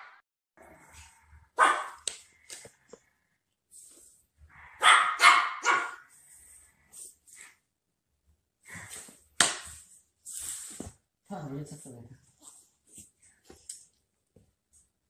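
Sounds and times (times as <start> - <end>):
dog barking: 1.5 - 2.0, 4.6 - 6.1.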